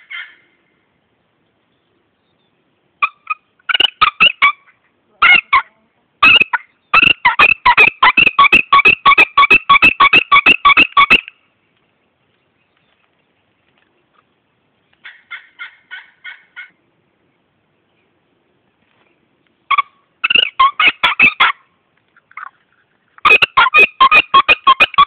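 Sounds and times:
turkey gobbling: 0.0s - 0.5s, 3.0s - 11.3s, 15.0s - 16.8s, 19.7s - 25.0s.

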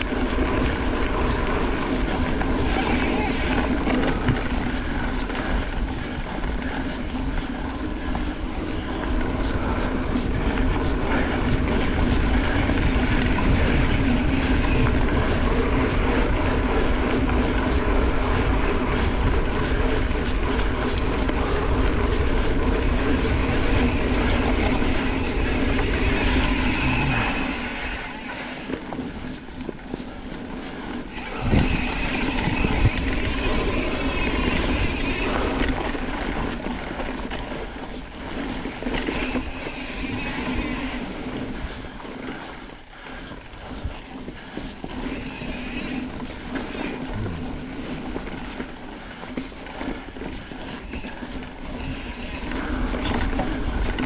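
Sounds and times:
bike rattling and clicking: 0.0s - 54.0s
bike tyres rolling on dirt: 0.0s - 54.0s.

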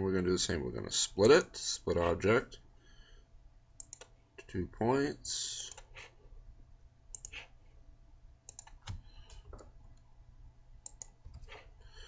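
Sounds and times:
faint low hum: 0.0s - 12.0s
computer mouse clicking: 3.8s - 4.2s, 7.1s - 7.5s, 8.5s - 9.7s, 10.8s - 11.6s.

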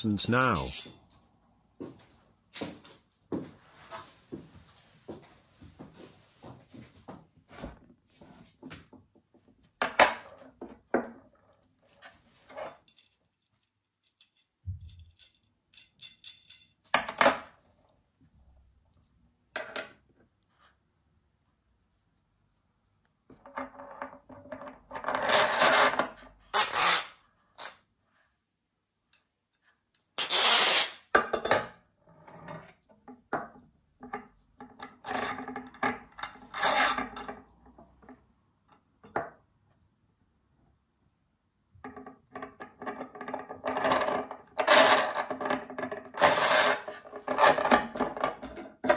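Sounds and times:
loud scrape: 46.2s - 47.6s.

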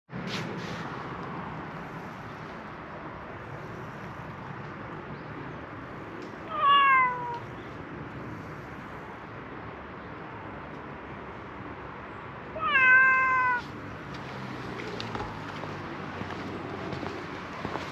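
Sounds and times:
cat meowing: 6.4s - 7.6s, 12.6s - 13.8s.

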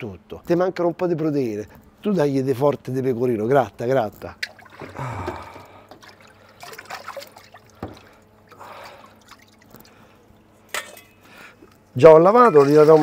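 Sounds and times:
water sloshing and trickling: 4.1s - 13.0s.

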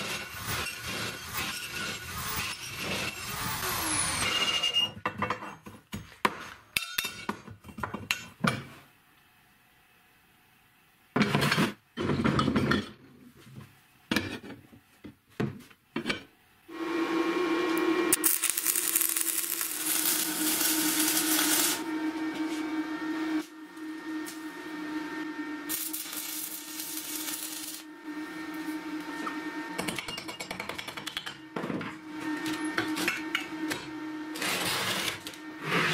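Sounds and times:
arc welding crackle and hiss: 0.0s - 4.6s, 18.1s - 21.9s, 25.6s - 29.3s
steady hum: 16.7s - 30.1s.

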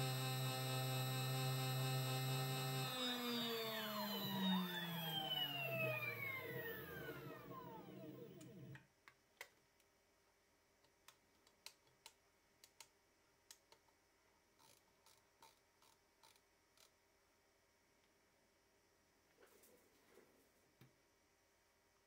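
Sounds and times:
stepper motor whine: 0.0s - 8.7s.

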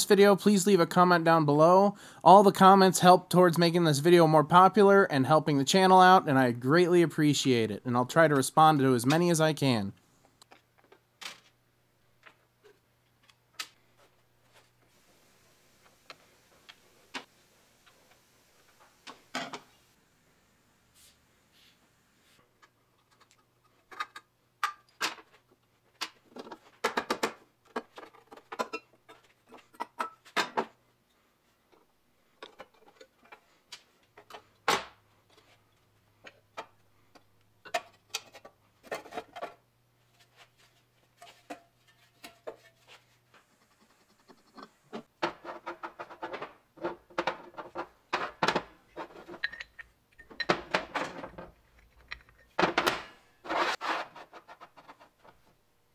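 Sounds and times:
metal parts and tools clinking: 47.6s - 52.6s.

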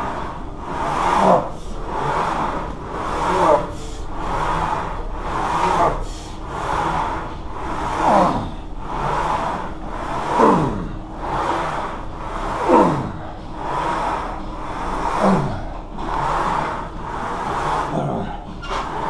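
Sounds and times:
man breathing heavily: 0.0s - 19.0s
man groaning: 10.3s - 11.0s, 12.6s - 13.2s.

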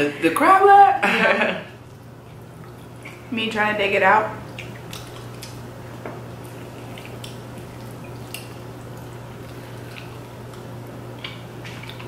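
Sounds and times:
steady low hum: 0.0s - 12.0s
wet clicks and squishes of crab legs: 4.4s - 12.0s.

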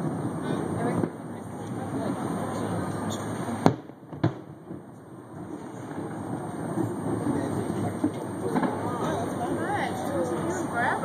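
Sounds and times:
city background rumble: 0.0s - 11.0s
distant firework bang: 3.1s - 4.9s, 6.8s - 9.2s.

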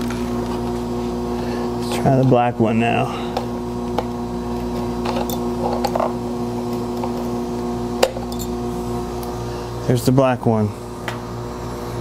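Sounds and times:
electrical hum: 0.0s - 12.0s.

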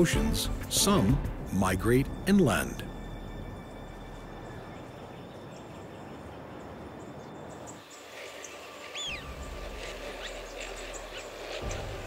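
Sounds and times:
steady outdoor noise: 0.0s - 12.0s
flock of birds calling: 7.6s - 12.0s.

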